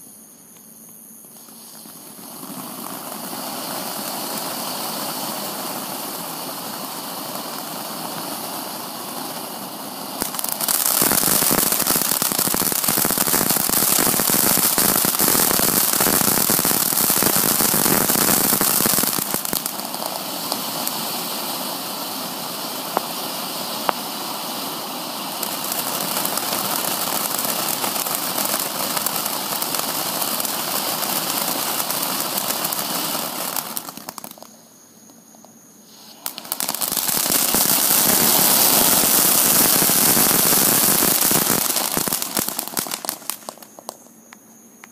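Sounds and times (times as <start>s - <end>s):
firework fountain hissing and crackling: 1.2s - 44.9s.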